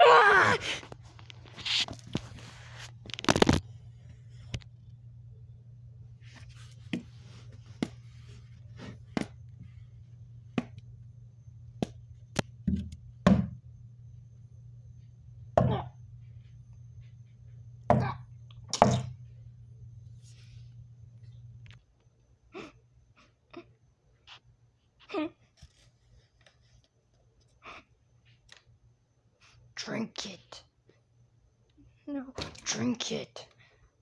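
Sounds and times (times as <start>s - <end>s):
steady low hum: 0.0s - 34.0s.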